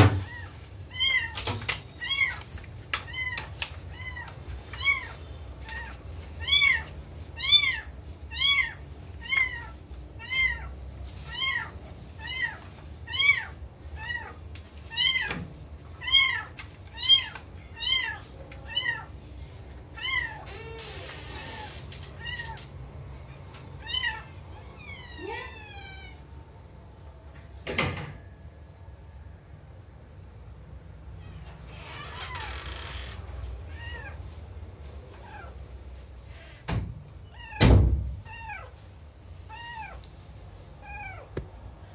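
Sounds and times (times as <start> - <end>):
kitten meowing: 5.7 - 10.7.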